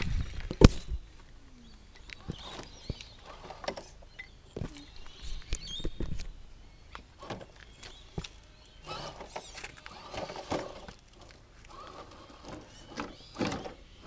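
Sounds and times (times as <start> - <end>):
toy car motor whirring: 2.1 - 4.1, 8.6 - 14.0.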